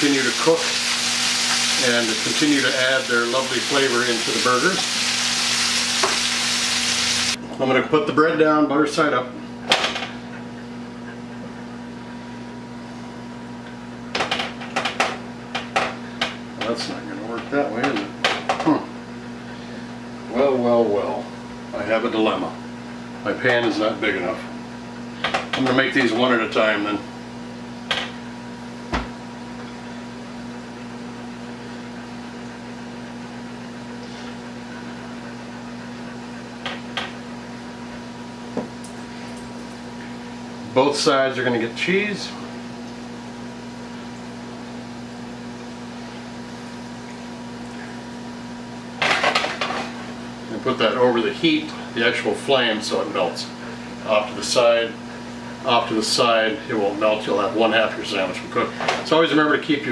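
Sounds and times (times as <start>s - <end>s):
mechanical hum: 0.0s - 59.9s.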